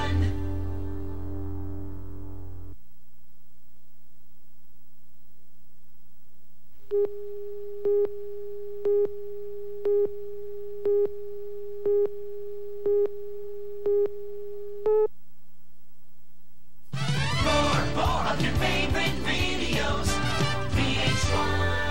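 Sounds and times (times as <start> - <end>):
low mains hum: 0.0 - 17.0.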